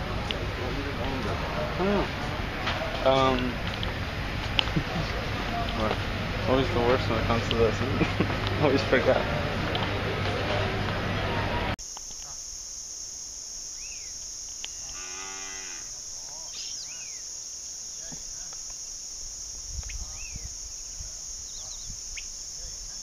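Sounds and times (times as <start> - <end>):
steady high drone: 0.0 - 11.8
cow mooing: 14.8 - 15.9.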